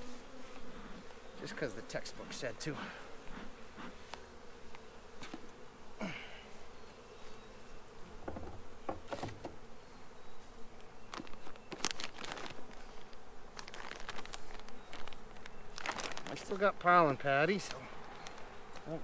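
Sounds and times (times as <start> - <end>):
honey bees buzzing: 0.0 - 19.0
hive equipment clicking and knocking: 8.2 - 9.6.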